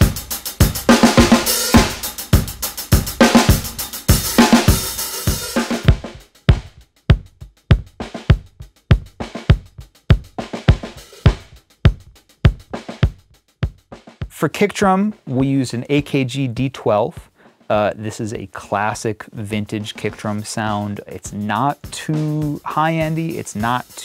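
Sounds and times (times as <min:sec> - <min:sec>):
dull bass drum thumps: 0:00.0 - 0:14.4
rock drum kit marching beat: 0:00.0 - 0:24.0.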